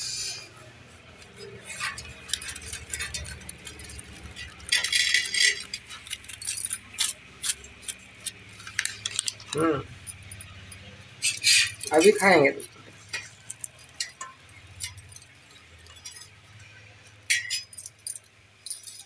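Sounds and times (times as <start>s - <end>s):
plastic packet crinkling: 8.3s - 9.6s.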